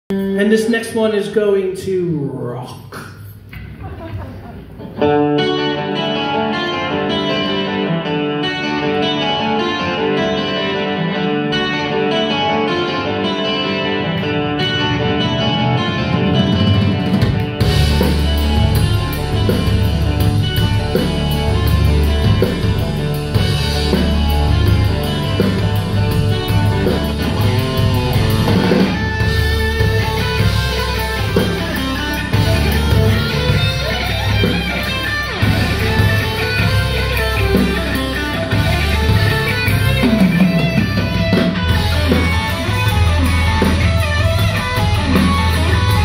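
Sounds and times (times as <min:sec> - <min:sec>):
bass guitar: 0:03.0 - 0:46.0
melodic electric guitar: 0:03.2 - 0:46.0
drum kit: 0:13.7 - 0:46.0.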